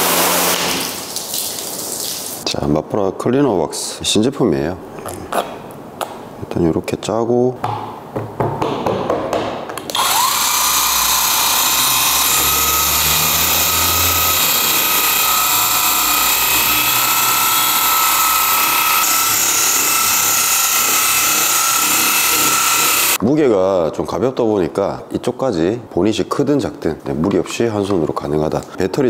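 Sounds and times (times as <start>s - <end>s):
polisher whining: 0.0s - 0.9s, 9.9s - 23.2s.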